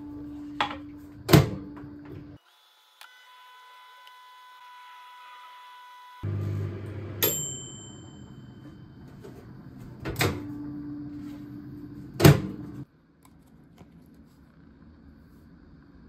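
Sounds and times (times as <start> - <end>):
microwave oven humming: 0.0 - 2.4, 5.8 - 12.9.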